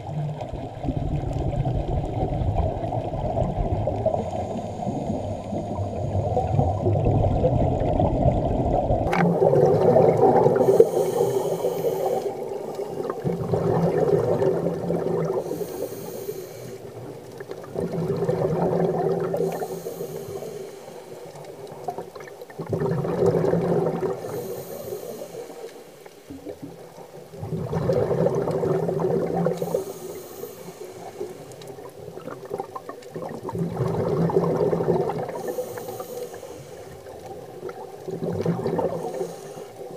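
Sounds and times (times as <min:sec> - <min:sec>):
exhaled bubbles underwater: 0:00.0 - 0:39.9
regulator hiss: 0:10.5 - 0:13.1, 0:15.4 - 0:16.9, 0:19.4 - 0:21.4, 0:24.2 - 0:26.3, 0:29.6 - 0:31.8, 0:35.3 - 0:37.2, 0:39.0 - 0:39.9.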